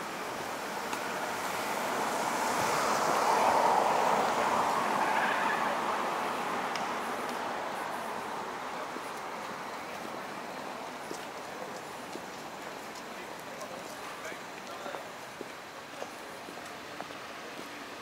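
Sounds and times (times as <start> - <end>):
car passing: 0.6 - 11.1.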